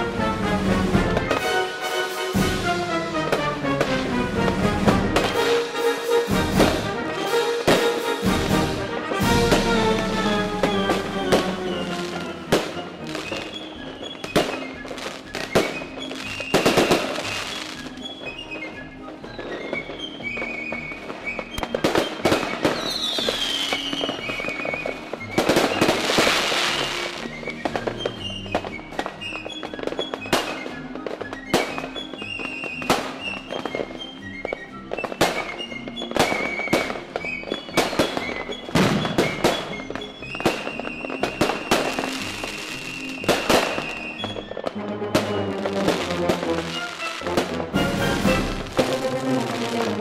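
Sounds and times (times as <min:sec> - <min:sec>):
fireworks bursting: 0:00.0 - 0:50.0
music playing: 0:00.0 - 0:50.0.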